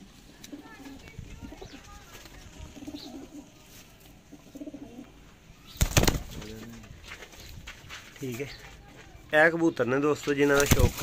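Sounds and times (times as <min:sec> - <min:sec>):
pigeons cooing: 0:02.8 - 0:03.5, 0:04.3 - 0:05.2.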